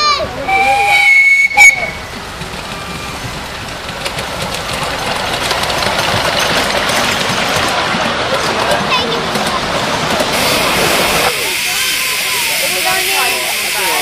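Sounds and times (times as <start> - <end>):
wheels clattering on rails: 0.0 - 14.0
steam locomotive whistle: 0.4 - 2.2, 10.4 - 14.0.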